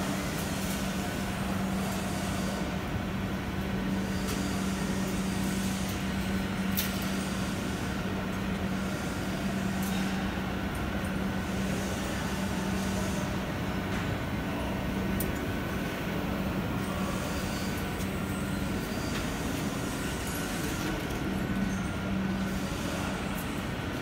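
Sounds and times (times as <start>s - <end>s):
factory machinery hum: 0.0s - 24.0s.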